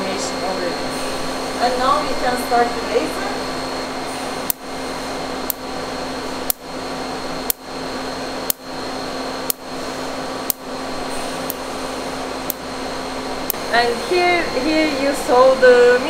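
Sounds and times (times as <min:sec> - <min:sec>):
steady machine hum: 0:00.0 - 0:16.0
laser pulse snaps: 0:04.4 - 0:04.7, 0:05.4 - 0:05.7, 0:06.4 - 0:06.7, 0:07.4 - 0:07.7, 0:08.4 - 0:08.7, 0:09.4 - 0:09.7, 0:10.4 - 0:11.7, 0:12.4 - 0:12.7.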